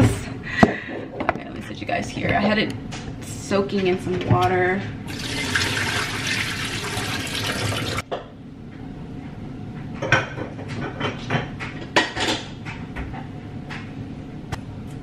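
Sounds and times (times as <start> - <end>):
water rushing from faucet: 5.1 - 8.0
cookware clinking and knocking: 10.0 - 12.6.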